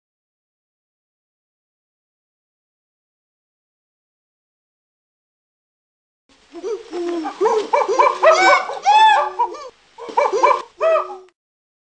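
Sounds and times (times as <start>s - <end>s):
dog-like yelps and barks: 7.2s - 11.4s.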